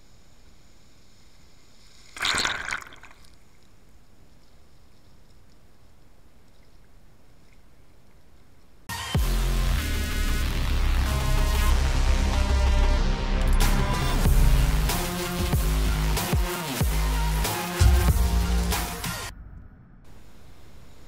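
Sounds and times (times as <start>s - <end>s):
faint steady hiss: 0.0s - 8.9s, 20.0s - 21.0s
music with deep bass hit: 9.1s - 19.3s.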